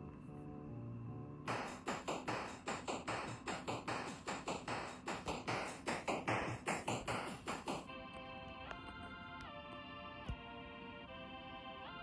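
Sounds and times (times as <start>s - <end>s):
rapid sharp taps: 1.5s - 7.9s.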